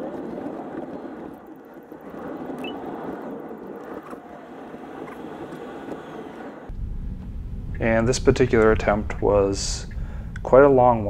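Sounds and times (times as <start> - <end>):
tyre and road noise: 0.0 - 8.8.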